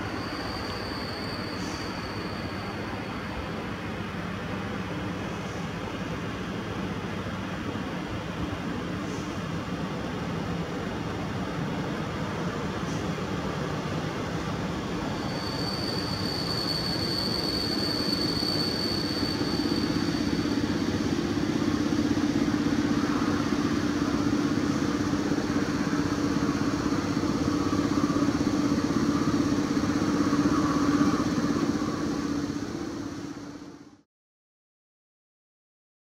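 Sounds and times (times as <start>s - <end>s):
thin high squeal: 0.0s - 3.1s, 15.2s - 20.9s
electric locomotive hum: 0.0s - 34.0s.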